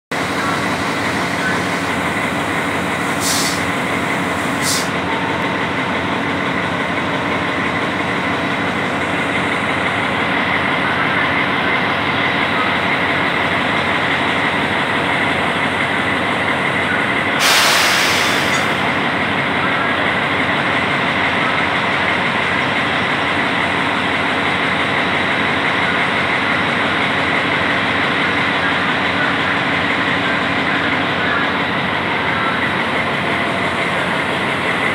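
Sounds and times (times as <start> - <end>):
locomotive diesel engine idling: 0.1 - 34.9
air hisses: 3.2 - 3.7, 17.4 - 18.7.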